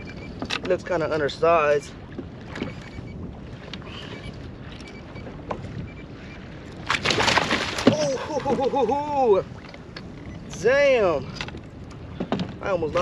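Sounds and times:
water lapping: 0:00.0 - 0:13.0
wind: 0:00.0 - 0:13.0
fish thrashing and splashing: 0:06.9 - 0:09.0.

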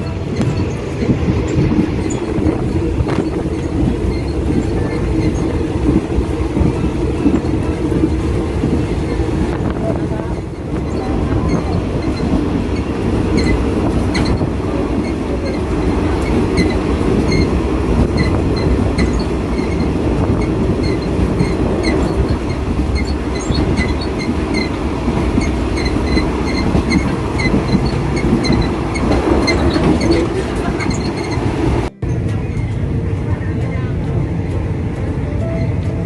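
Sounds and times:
train wheels rumbling on rails: 0:00.0 - 0:36.0
high-pitched squeaks and rattles: 0:00.3 - 0:06.1, 0:10.2 - 0:15.6, 0:16.2 - 0:17.5, 0:18.1 - 0:31.5.

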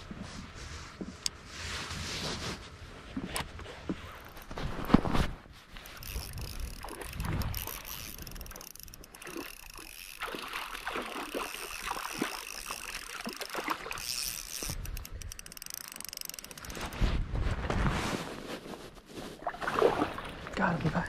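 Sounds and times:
fish splashing at water surface: 0:09.2 - 0:14.0, 0:19.4 - 0:20.4.

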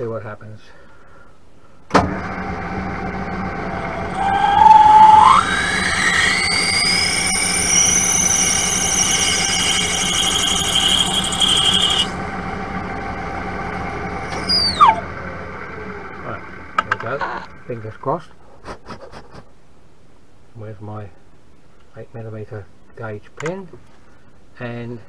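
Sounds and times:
metal lathe running: 0:02.8 - 0:15.1
drill cutting squeal: 0:03.6 - 0:12.4, 0:14.2 - 0:15.0.

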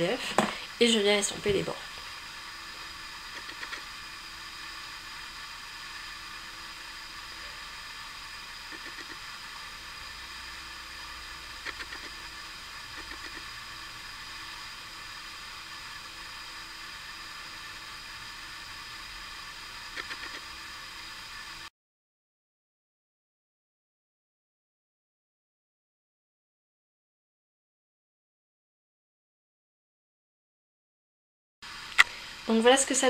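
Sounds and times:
faint steady hum: 0:00.0 - 0:21.7.

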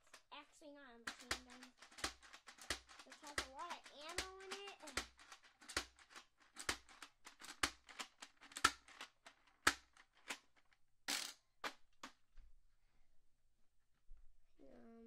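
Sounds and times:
plastic blaster clacking: 0:01.1 - 0:10.4.

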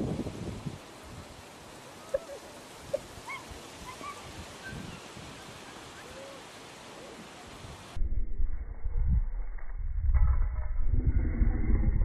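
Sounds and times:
wind on microphone: 0:00.0 - 0:01.5, 0:02.8 - 0:05.6, 0:07.5 - 0:12.0.

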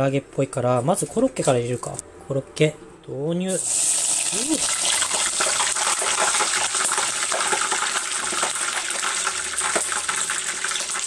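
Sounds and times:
oil sizzling and crackling: 0:03.6 - 0:11.0.

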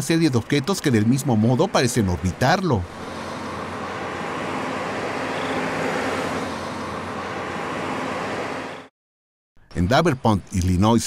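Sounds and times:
steady rushing noise: 0:01.1 - 0:08.9.

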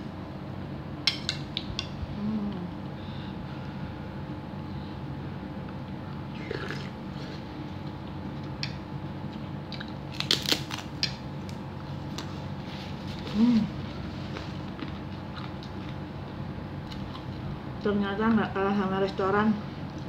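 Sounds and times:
steady low hum: 0:00.0 - 0:20.0
crisp crunches: 0:10.1 - 0:11.0
person chewing food: 0:13.0 - 0:17.5.

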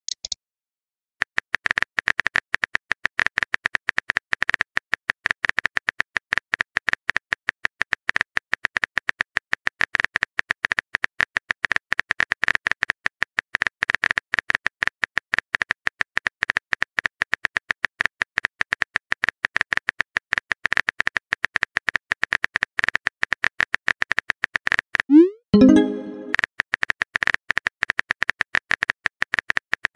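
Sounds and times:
simulated keyboard typing clicks: 0:00.1 - 0:00.4.

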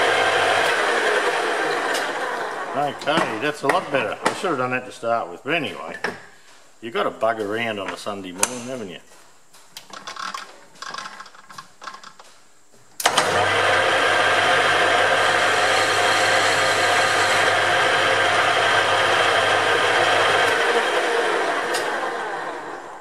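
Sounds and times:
metal lathe motor humming: 0:00.0 - 0:03.5, 0:13.0 - 0:23.0.

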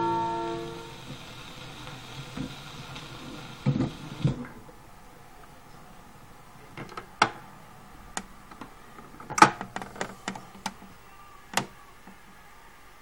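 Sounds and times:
record player tonearm clicking: 0:00.0 - 0:04.6.

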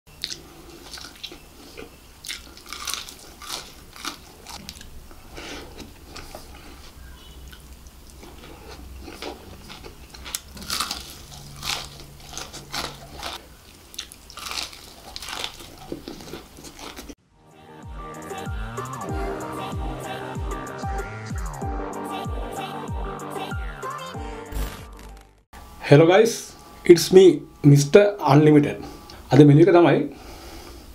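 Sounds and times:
wet chewing: 0:00.1 - 0:05.0, 0:07.5 - 0:17.2
crunching fried chicken: 0:00.2 - 0:04.9, 0:08.1 - 0:17.2.

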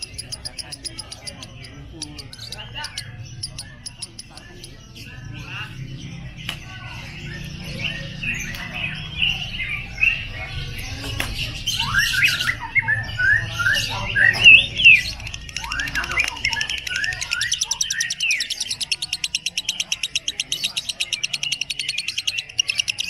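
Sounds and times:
lovebird chattering: 0:00.0 - 0:04.9, 0:14.1 - 0:23.0.

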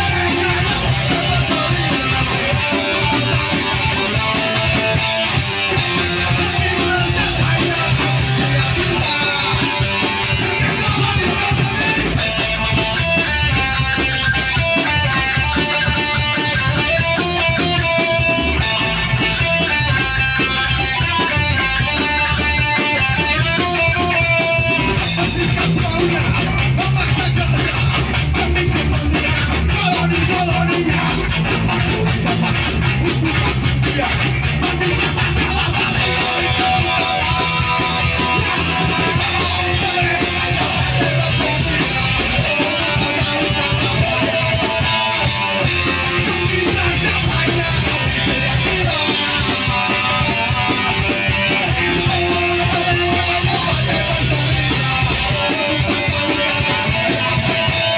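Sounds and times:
person singing into microphone: 0:00.0 - 0:04.4, 0:05.7 - 0:12.3, 0:32.8 - 0:57.9
distorted electric guitar: 0:00.0 - 0:57.9
drum kit: 0:00.0 - 0:57.9
electric bass: 0:00.0 - 0:57.9.

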